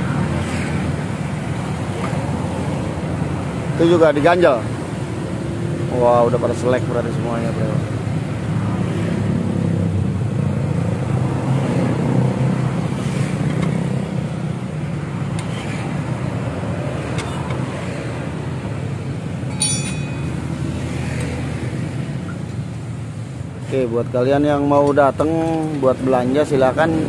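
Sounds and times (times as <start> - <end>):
street traffic hum: 0.0 - 27.0
metallic clink: 19.4 - 20.6.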